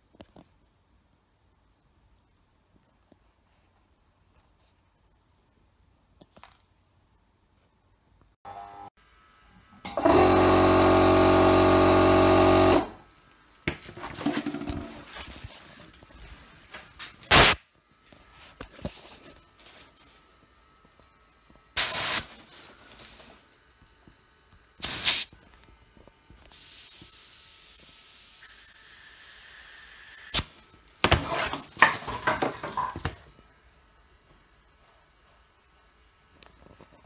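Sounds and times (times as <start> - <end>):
compressed air hissing from nozzle: 21.8 - 22.4, 24.8 - 25.4, 26.5 - 28.5.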